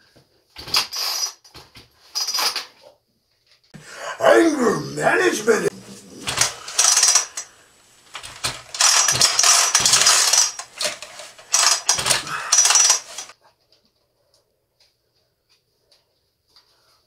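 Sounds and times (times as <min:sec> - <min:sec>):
metal clattering and scraping: 0:05.8 - 0:07.5, 0:08.1 - 0:13.3.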